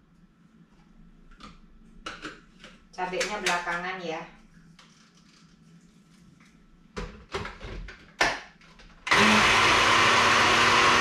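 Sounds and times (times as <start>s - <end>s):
blender motor whirring: 9.1s - 11.0s.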